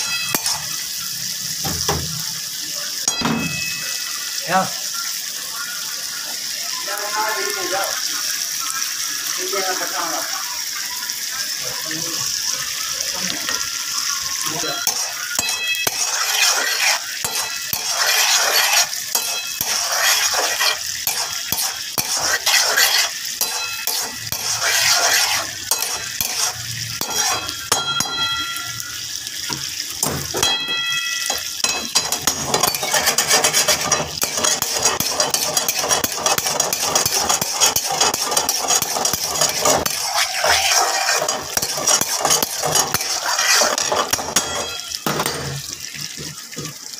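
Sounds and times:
metal spatula scraping pan: 0.0s - 0.9s, 14.4s - 28.7s, 30.2s - 46.2s
sizzle of frying: 0.0s - 46.9s.

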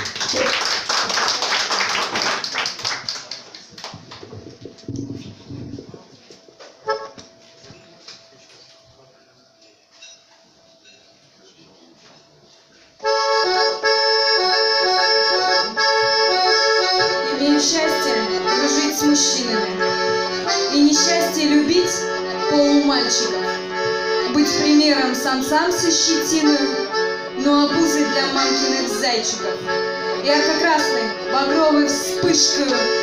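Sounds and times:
piano accordion playing: 4.9s - 8.4s, 13.0s - 33.0s.

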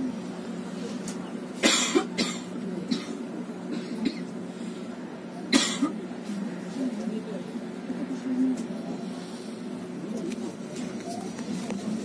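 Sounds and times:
train carriage hum: 0.0s - 12.0s
person coughing: 1.6s - 4.3s, 5.5s - 6.0s.

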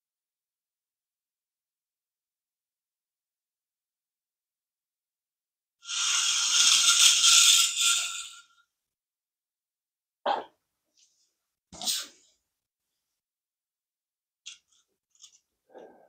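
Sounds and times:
toy motor and gearbox whirring: 5.8s - 8.5s.

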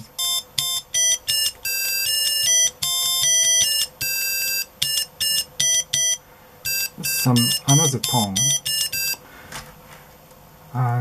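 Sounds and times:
high buzzy square-wave notes: 0.0s - 9.3s.

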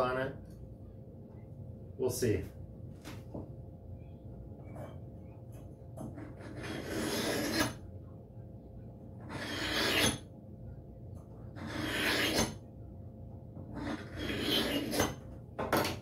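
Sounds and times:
hatchet scraping on sharpener: 6.1s - 7.8s, 9.3s - 10.2s, 11.6s - 12.6s, 13.8s - 15.2s.

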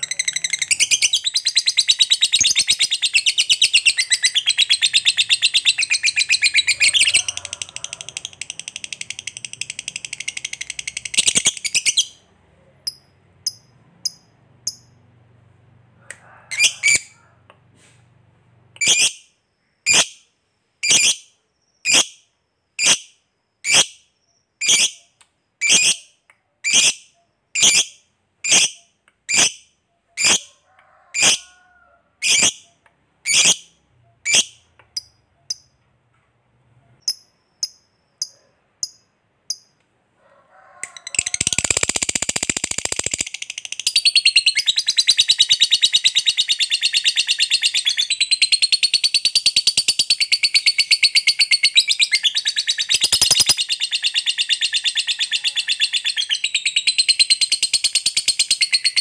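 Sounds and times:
bird chirps and calls: 0.0s - 12.2s, 41.0s - 59.0s
lovebird chattering trill: 0.0s - 12.2s, 41.0s - 59.0s.

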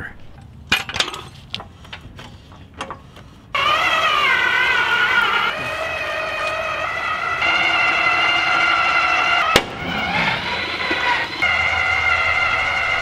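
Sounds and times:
electric motor whining: 3.5s - 13.0s.

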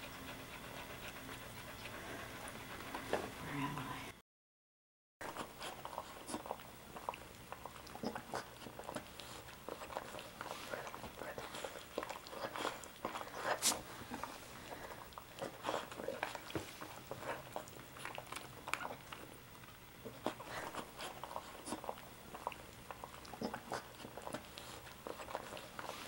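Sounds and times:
dog licking puppy: 0.0s - 3.2s, 5.2s - 26.0s.

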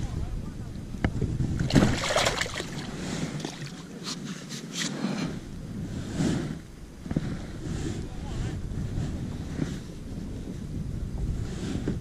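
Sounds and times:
wind on microphone: 0.0s - 12.0s
water lapping against hull: 0.7s - 9.8s.

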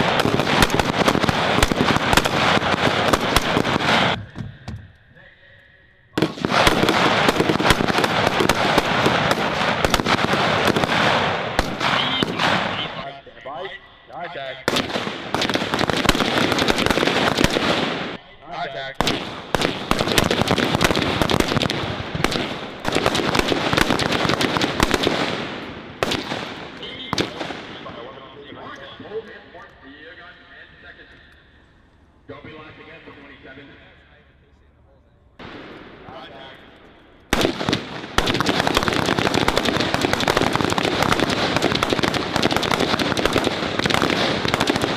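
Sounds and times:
rifle shots: 0.0s - 4.4s, 6.2s - 13.0s, 14.6s - 18.2s, 19.0s - 28.1s, 37.3s - 44.9s.

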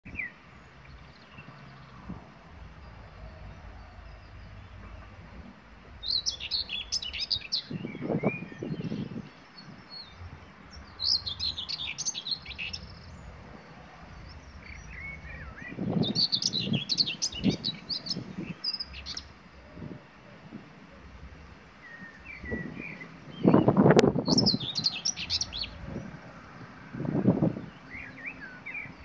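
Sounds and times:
bird singing short rapid phrases: 24.3s - 25.8s.

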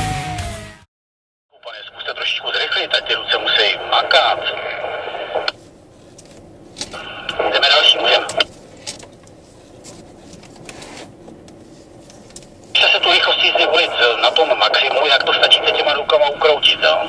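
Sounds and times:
voice over a radio: 1.6s - 5.6s, 7.0s - 8.5s, 12.8s - 17.0s
car cabin noise: 2.2s - 17.0s.

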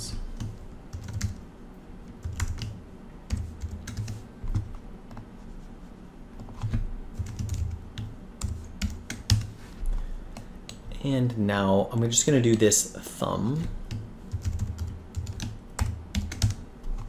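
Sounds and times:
computer keyboard typing: 0.4s - 1.4s, 2.1s - 5.2s, 6.4s - 9.6s, 13.6s - 17.0s.

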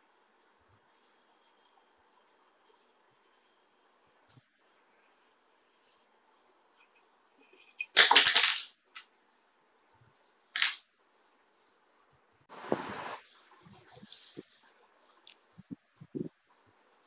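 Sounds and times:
faint chirping: 0.0s - 8.0s, 8.8s - 17.0s
small hard objects clattering on tabletop: 7.6s - 9.0s, 10.6s - 10.8s.

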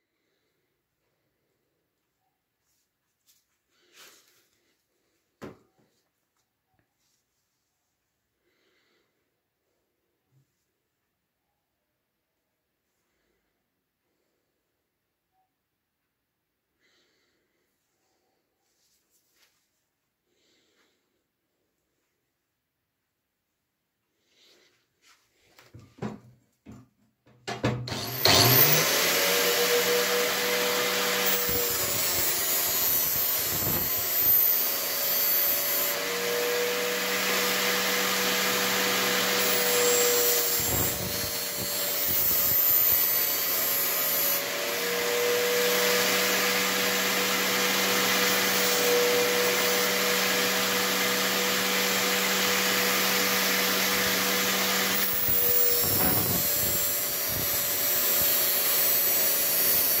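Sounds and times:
angle grinder motor whine: 27.9s - 60.0s
steel grinding on disc: 28.0s - 36.0s, 38.2s - 60.0s.

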